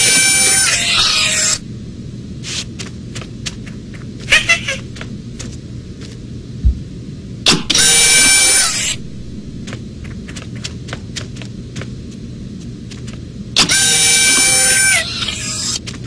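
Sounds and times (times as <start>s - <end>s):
photocopier mechanical whine: 7.5s - 10.4s.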